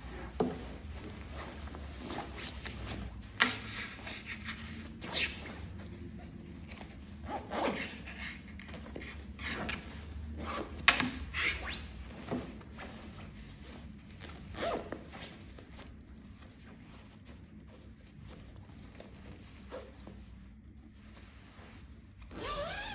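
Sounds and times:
nylon fabric rustling: 0:00.0 - 0:22.9
zip being worked: 0:07.3 - 0:08.1, 0:22.3 - 0:22.9.

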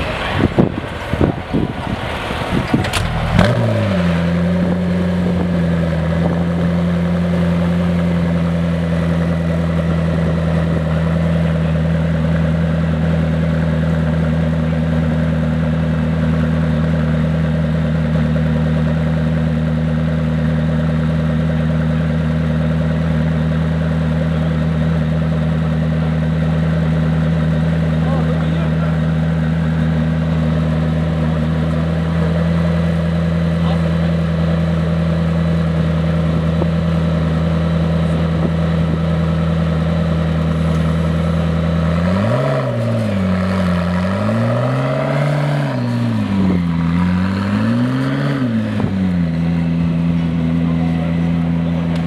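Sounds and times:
car engine starting and idling: 0:00.0 - 0:52.0.

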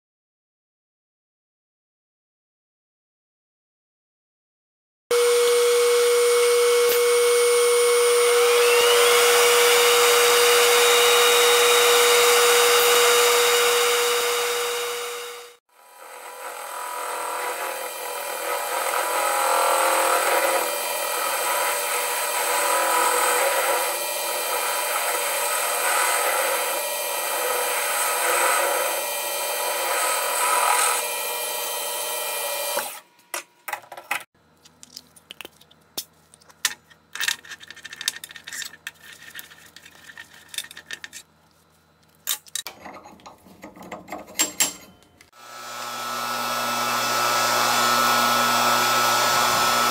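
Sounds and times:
metal lathe cutting: 0:05.2 - 0:33.0, 0:45.4 - 0:49.9
metal tooling clicks and knocks: 0:36.4 - 0:41.2, 0:42.2 - 0:45.3.

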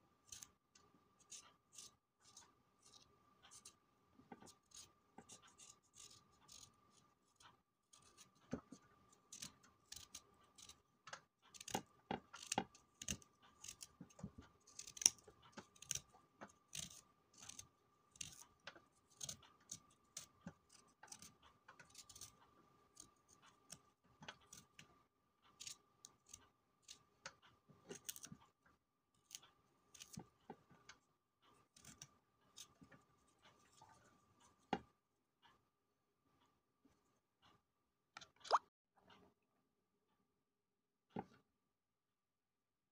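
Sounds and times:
knife scraping root: 0:04.4 - 0:07.1, 0:09.1 - 0:10.8, 0:12.4 - 0:13.9, 0:14.7 - 0:16.1, 0:16.7 - 0:18.4, 0:19.1 - 0:22.4, 0:27.9 - 0:28.3, 0:29.2 - 0:30.2.

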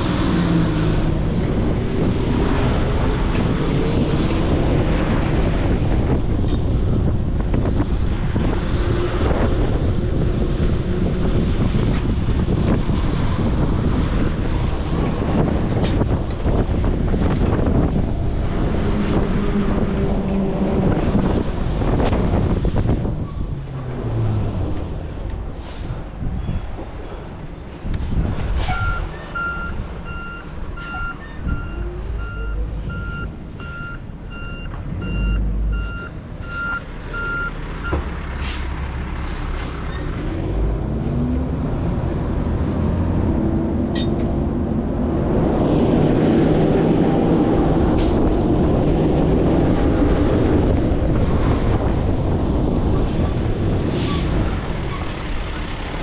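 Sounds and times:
truck engine revving: 0:00.0 - 0:06.3, 0:07.0 - 0:56.0
air brakes hissing: 0:25.5 - 0:29.0, 0:38.4 - 0:40.0
reversing alarm beeping: 0:28.8 - 0:38.0.

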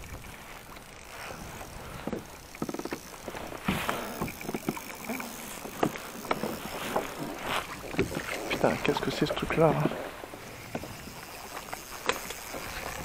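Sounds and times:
fishing reel clicking: 0:00.0 - 0:09.8, 0:10.5 - 0:13.0
water lapping against hull: 0:00.0 - 0:13.0.

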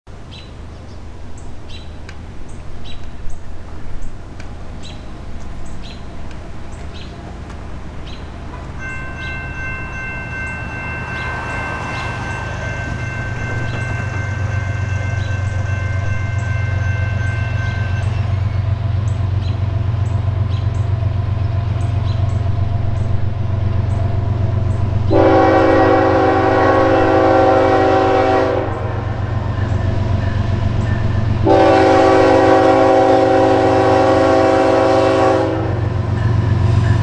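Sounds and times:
engine and rail rumble: 0:00.1 - 0:37.0
locomotive horn chord: 0:08.8 - 0:19.0, 0:25.0 - 0:29.3, 0:31.3 - 0:36.1.

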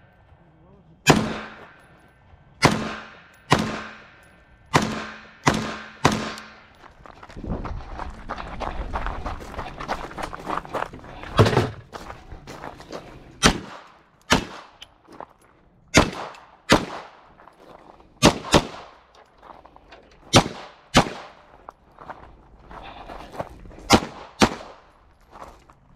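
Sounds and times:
gunshots: 0:01.0 - 0:01.9, 0:02.6 - 0:06.7, 0:13.4 - 0:14.8, 0:15.9 - 0:17.2, 0:18.2 - 0:19.0, 0:20.3 - 0:21.5, 0:23.9 - 0:24.9.

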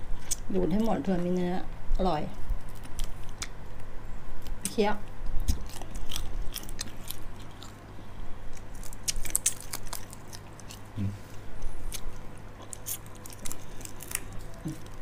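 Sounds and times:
chewing hard shells: 0:05.4 - 0:15.0.

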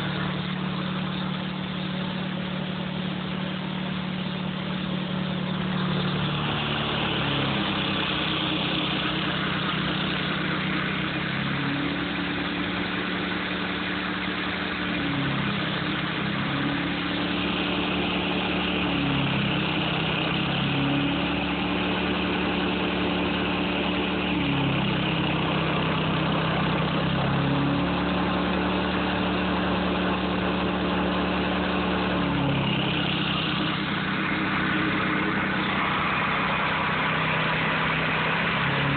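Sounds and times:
gas engine running: 0:00.0 - 0:38.9.

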